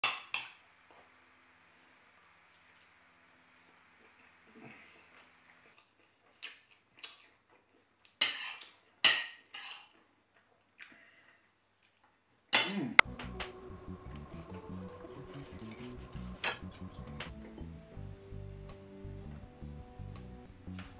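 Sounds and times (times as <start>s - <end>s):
fork and knife scraping a plate: 8.2s - 8.8s
background music: 13.0s - 20.9s.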